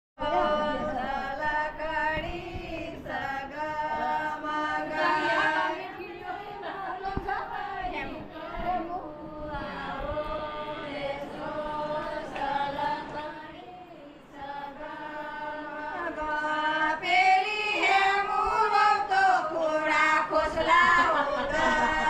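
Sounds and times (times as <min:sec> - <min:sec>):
group of voices singing: 0:00.2 - 0:22.0.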